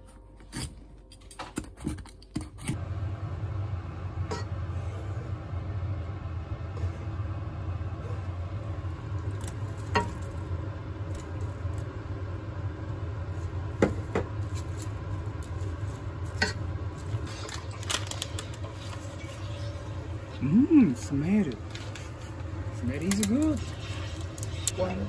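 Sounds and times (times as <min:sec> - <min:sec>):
low hum: 0:02.7 - 0:25.0
wooden spatula stirring in pot: 0:21.6 - 0:25.0.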